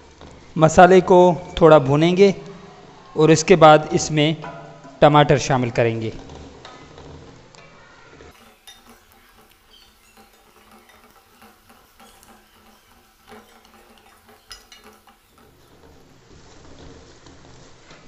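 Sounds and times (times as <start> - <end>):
faint sizzle of frying: 6.2 - 18.0
light knocks against a pot: 8.3 - 16.0
wooden spatula scraping a pot: 8.3 - 16.4.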